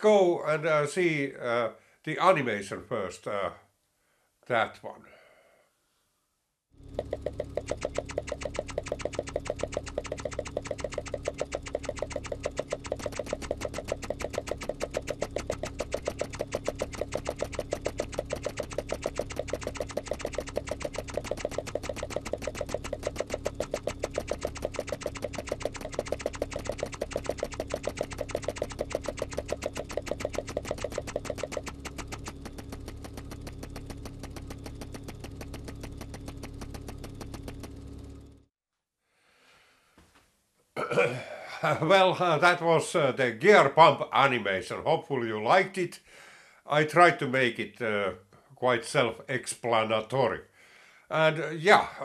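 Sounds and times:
machine hum: 0:06.8 - 0:38.5
rapid machine clicking: 0:07.0 - 0:38.4.

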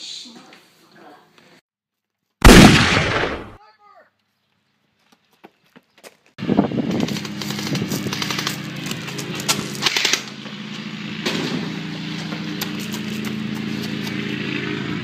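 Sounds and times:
gunshots: 0:02.4 - 0:03.6.

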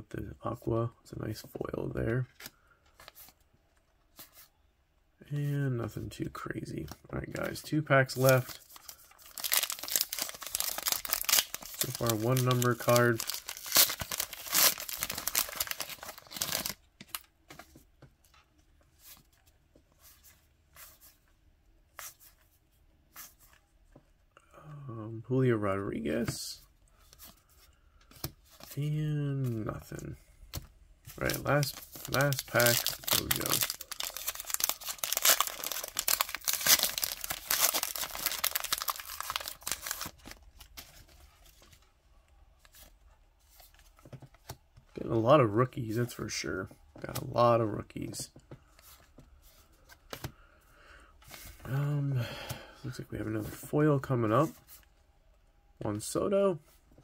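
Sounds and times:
cards being handled: 0:06.8 - 0:21.2, 0:27.0 - 0:41.8
wrapper crinkle: 0:08.1 - 0:17.3, 0:31.2 - 0:40.8.

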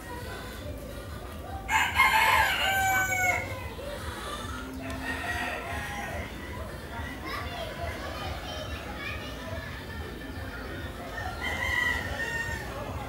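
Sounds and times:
rooster crowing: 0:01.7 - 0:03.5, 0:11.3 - 0:12.8.

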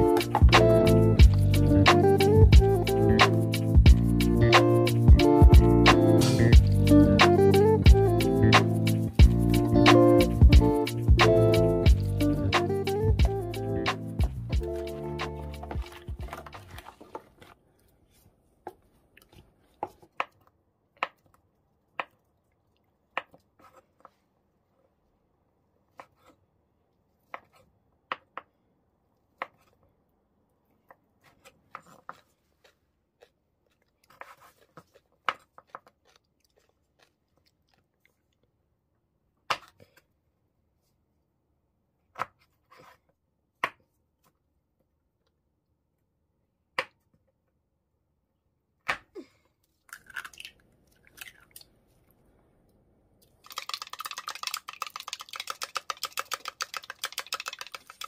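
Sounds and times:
eggs beaten in plastic cup: 0:14.6 - 0:17.6, 0:53.2 - 0:58.0.

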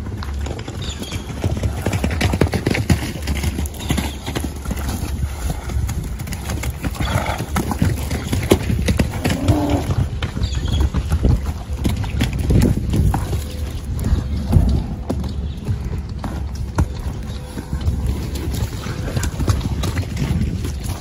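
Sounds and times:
hooves on damp dirt: 0:00.0 - 0:21.0
horse calls: 0:09.0 - 0:10.8.

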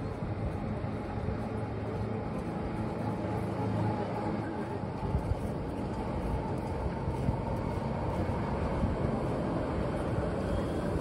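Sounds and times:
electric train rumbling: 0:00.0 - 0:11.0
faint high whine: 0:09.2 - 0:11.0.

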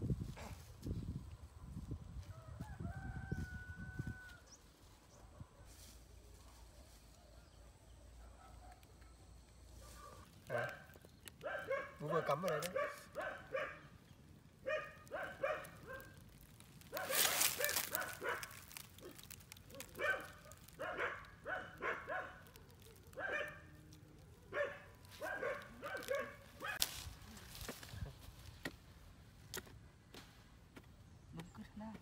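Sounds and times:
dog barking: 0:08.1 - 0:09.2, 0:09.8 - 0:13.9, 0:14.6 - 0:16.2, 0:16.9 - 0:23.7, 0:24.5 - 0:26.9.

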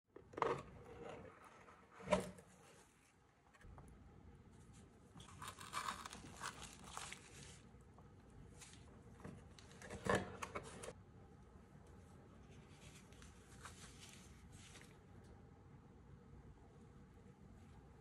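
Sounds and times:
bubble wrap crinkling: 0:05.2 - 0:07.7.

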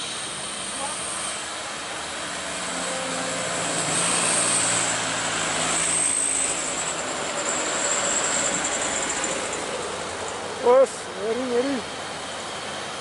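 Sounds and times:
truck diesel engine labouring: 0:00.0 - 0:13.0
thin high whine: 0:02.6 - 0:09.5.

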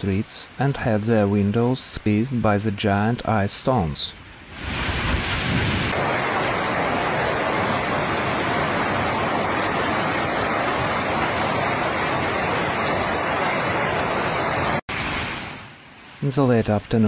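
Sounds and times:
heavy rain and hail: 0:04.4 - 0:16.4.

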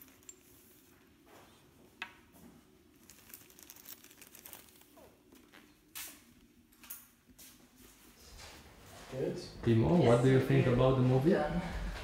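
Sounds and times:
small clicks and rustles: 0:02.9 - 0:07.2.

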